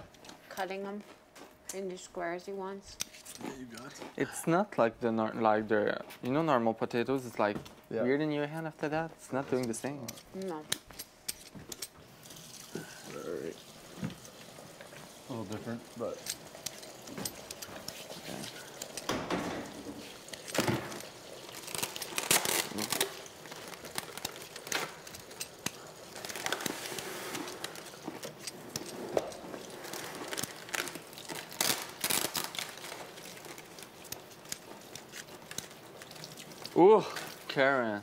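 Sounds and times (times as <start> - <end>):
rustling and scraping on cutting board: 16.6 - 21.1, 26.2 - 31.0.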